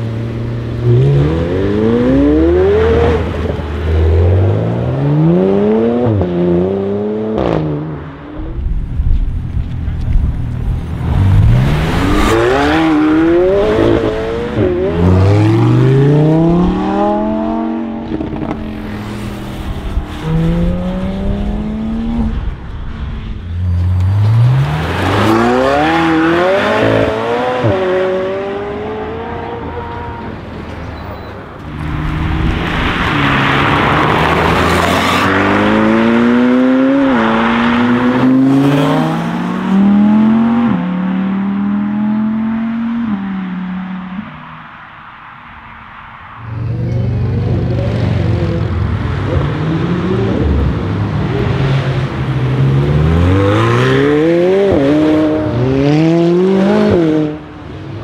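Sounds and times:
loud rushing noise: 0:31.6 - 0:39.9.

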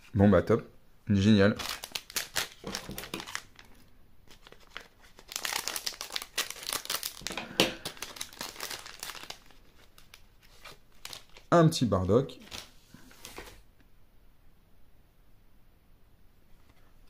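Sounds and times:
plastic packet crinkling: 0:01.6 - 0:11.6, 0:12.4 - 0:13.5.

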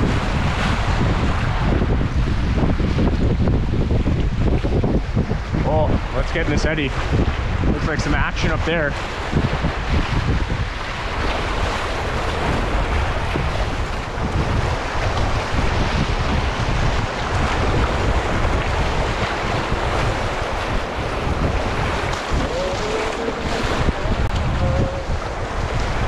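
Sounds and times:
wind buffeting microphone: 0:00.0 - 0:26.0
river rapids rushing: 0:11.1 - 0:26.0.

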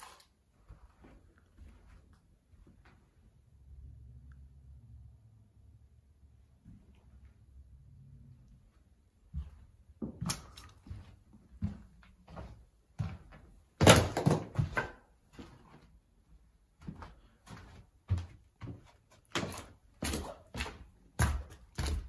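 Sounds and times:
footsteps on debris-strewn floor: 0:00.0 - 0:03.2, 0:09.2 - 0:22.0.

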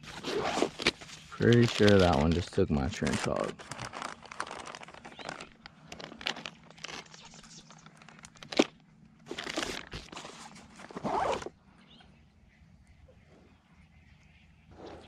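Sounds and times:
plastic packet crinkling: 0:00.0 - 0:10.9.

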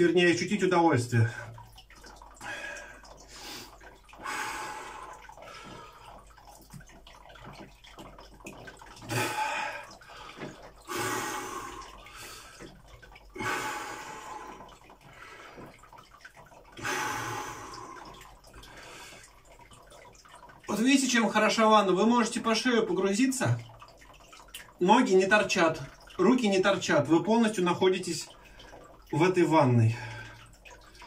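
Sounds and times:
water lapping and dripping: 0:00.0 - 0:31.0
man breathing heavily: 0:09.1 - 0:12.6.

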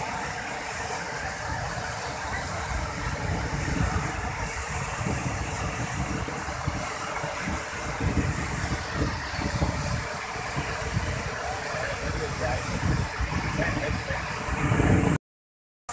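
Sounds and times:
water rushing over spillway: 0:00.0 - 0:15.2.

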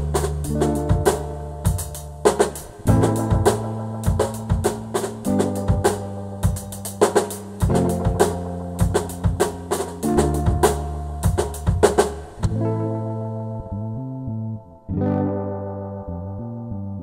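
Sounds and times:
drum kit beat: 0:00.0 - 0:12.8
deep bass line: 0:00.0 - 0:17.0.

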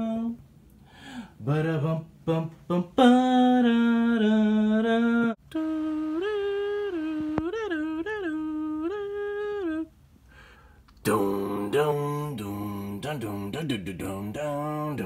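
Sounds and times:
person humming a tune: 0:03.0 - 0:10.0.

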